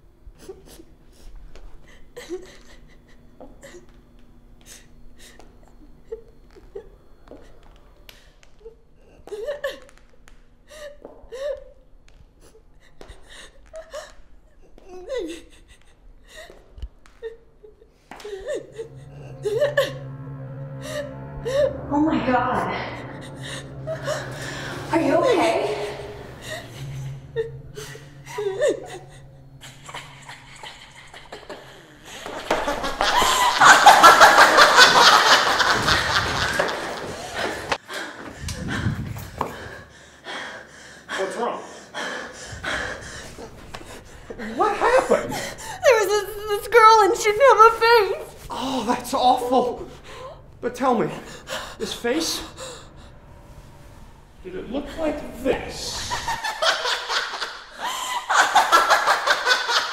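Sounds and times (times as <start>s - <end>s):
woman sobbing: 0.4s - 4.0s, 8.6s - 10.0s, 10.6s - 11.8s, 12.4s - 22.0s, 22.9s - 38.9s, 42.0s - 50.5s, 55.9s - 59.9s.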